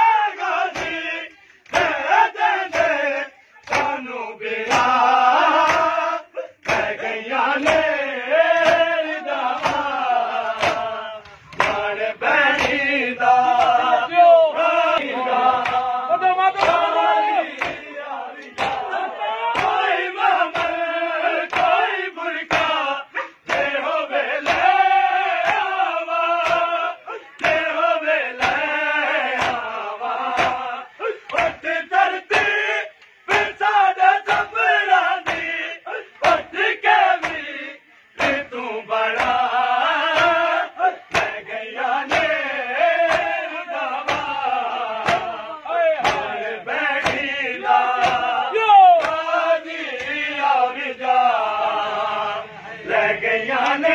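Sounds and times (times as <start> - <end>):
men chanting in unison: 0.0 - 53.9
chest slaps: 6.6 - 7.0, 8.6 - 12.8, 17.5 - 18.9, 19.6 - 19.8, 41.1 - 41.4, 44.0 - 45.4, 46.0 - 46.4, 47.0 - 47.3, 47.9 - 48.4.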